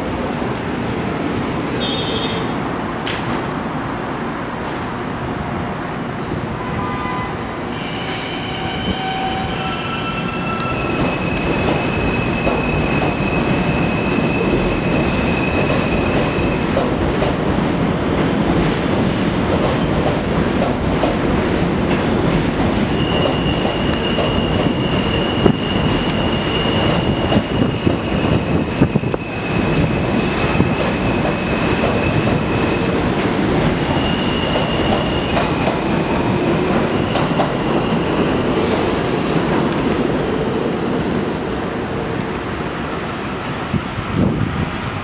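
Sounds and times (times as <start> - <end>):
subway train propulsion whine: 0.0 - 45.0
train cars rumbling: 0.0 - 45.0
high wheel squeal: 6.7 - 16.6, 22.9 - 32.9, 33.9 - 38.5.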